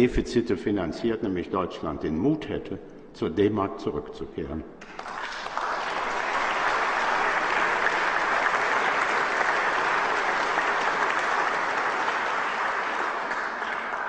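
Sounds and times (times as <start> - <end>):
audience applauding: 4.8 - 14.0.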